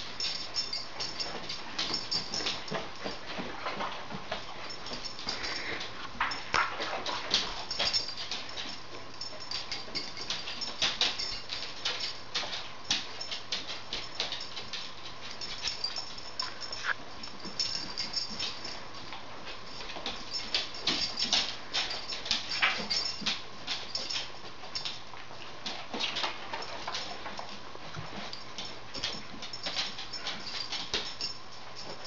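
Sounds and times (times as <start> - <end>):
dog tags jingling: 0.0 - 3.9, 4.5 - 32.0.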